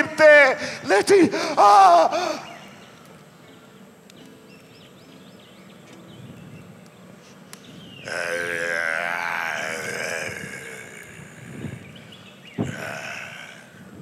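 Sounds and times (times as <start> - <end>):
man groaning loudly: 0.2 - 2.5, 8.0 - 12.0, 12.6 - 13.8.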